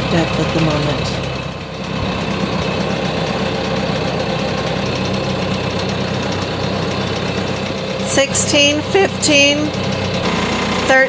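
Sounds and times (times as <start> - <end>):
diesel boat engine droning: 0.0 - 11.0.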